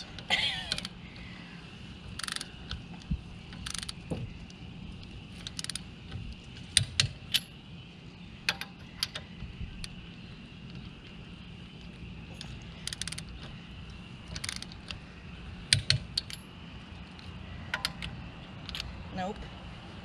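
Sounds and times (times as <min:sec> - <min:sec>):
torque wrench clicking: 0:02.2 - 0:02.8, 0:03.5 - 0:04.0, 0:05.4 - 0:05.9, 0:12.4 - 0:13.5, 0:14.2 - 0:15.0, 0:15.7 - 0:16.4.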